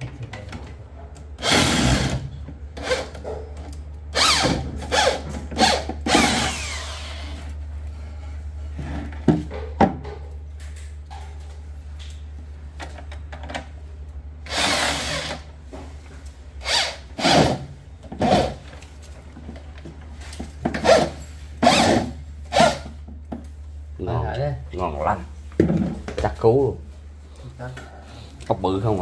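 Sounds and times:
power drill driving screws: 1.4 - 2.2, 4.2 - 7.3, 14.5 - 15.4, 20.8 - 22.8.

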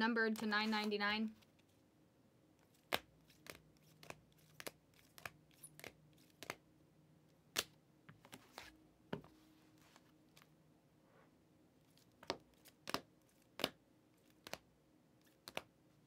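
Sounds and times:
trading cards in plastic clicking: 2.6 - 6.6, 15.2 - 15.7.

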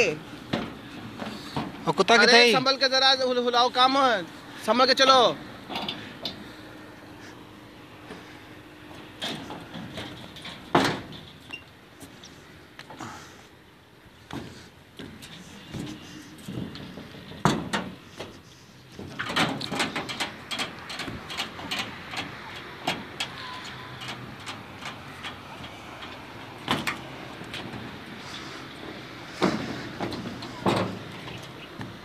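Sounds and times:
footsteps on wooden planks: 14.2 - 18.4, 25.7 - 32.0.

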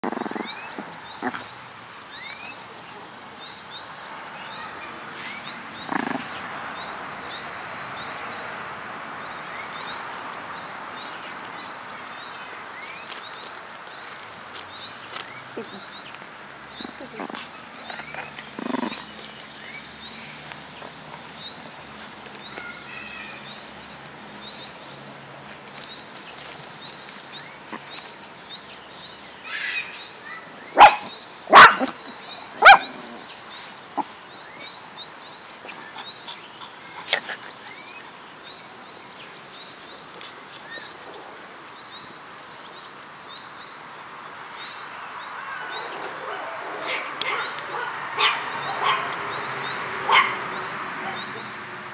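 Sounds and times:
birds chirping: 0.0 - 51.9
small dog barking: 30.7 - 32.0, 32.6 - 33.2, 45.8 - 49.2, 50.0 - 50.4.

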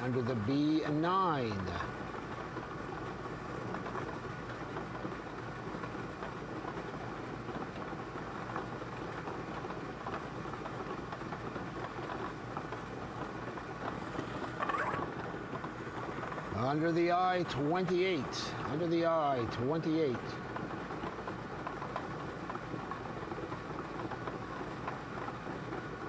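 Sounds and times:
ball blower running: 0.0 - 26.0.

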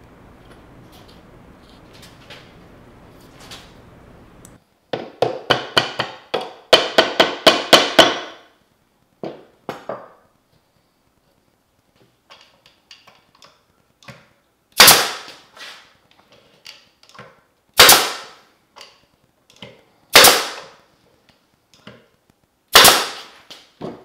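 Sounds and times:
nail gun shots: 6.8 - 8.5, 14.8 - 15.4, 17.8 - 18.4, 20.1 - 20.8, 22.7 - 23.4.

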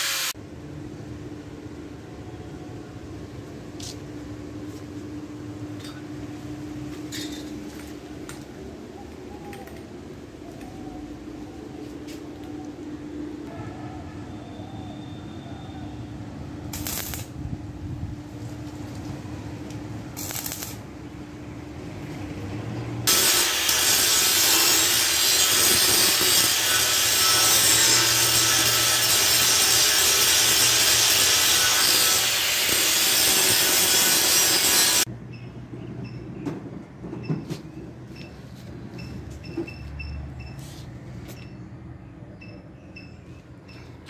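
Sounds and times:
electric power tool running: 0.0 - 0.4, 23.1 - 35.1.

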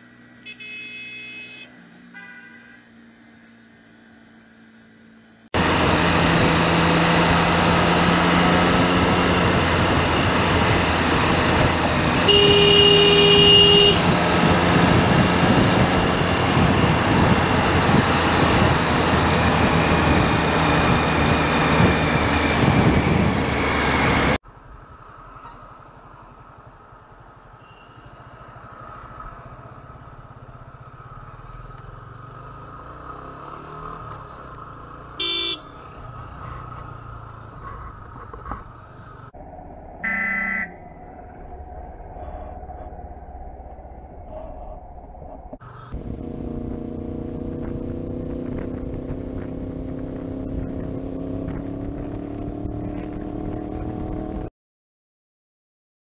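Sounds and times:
motorcycle engine and road noise: 0.0 - 54.5
street traffic hum: 0.0 - 54.5
vehicle horn honks: 0.4 - 2.8, 12.2 - 14.2, 35.2 - 35.8, 40.0 - 40.8.

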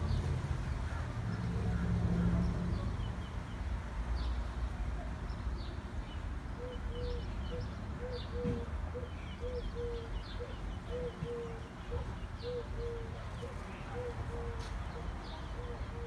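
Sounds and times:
birds chirping: 0.0 - 16.0
bird hooting call: 6.6 - 13.2.

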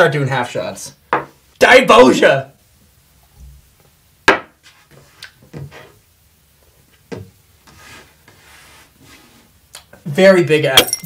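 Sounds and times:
knocks on wooden tabletop: 4.3 - 4.5.

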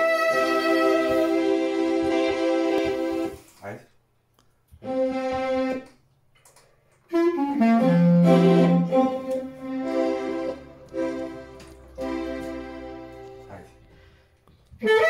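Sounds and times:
clarinet melody: 0.0 - 3.5, 4.8 - 6.0, 7.1 - 14.2, 14.8 - 15.0.

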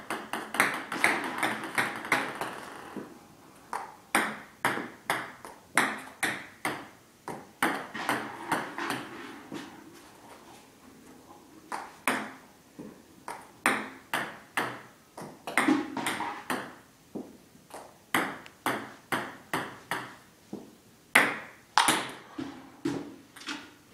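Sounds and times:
ping-pong ball bouncing on table: 0.0 - 3.1, 3.7 - 9.0, 11.7 - 12.4, 13.3 - 16.8, 17.7 - 20.2, 21.2 - 22.2
paddle striking ping-pong ball: 3.7 - 9.1, 11.7 - 12.4, 13.3 - 16.8, 17.7 - 20.2.

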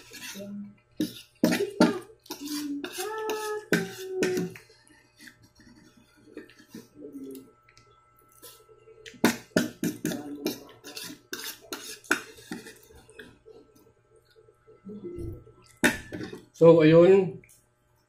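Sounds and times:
fork scraping ceramic plate: 0.0 - 4.6, 9.3 - 12.8.

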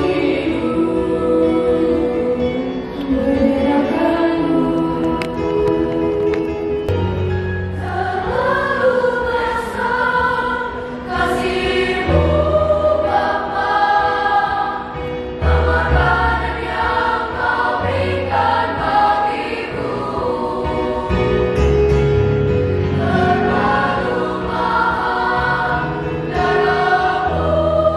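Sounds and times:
children's choir singing: 0.0 - 7.0, 7.7 - 21.6, 22.9 - 27.9.

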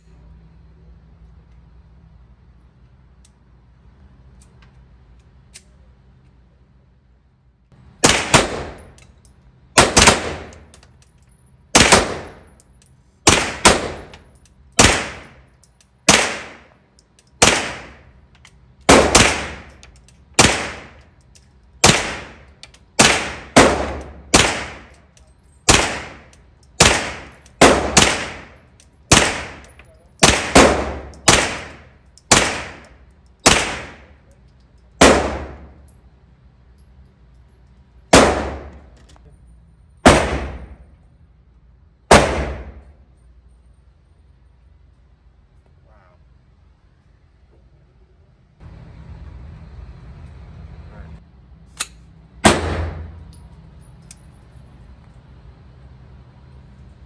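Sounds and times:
gunshots echoing indoors: 40.1 - 40.9, 42.1 - 42.9, 52.4 - 53.2.

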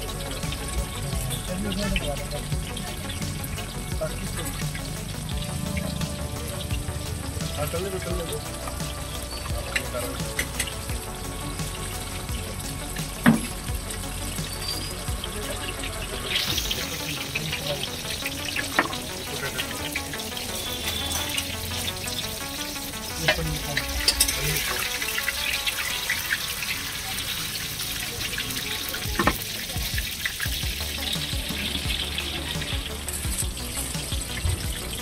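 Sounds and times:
hot oil sizzling: 0.0 - 35.0.

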